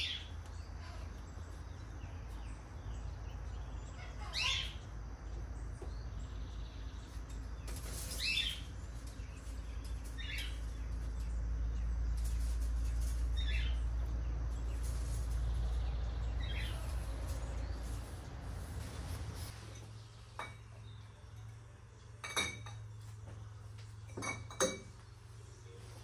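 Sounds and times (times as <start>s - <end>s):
bird chirps: 0.0s - 22.2s
steady low rumble: 8.7s - 20.4s
glass bottles clinking: 22.2s - 22.9s, 24.1s - 25.0s.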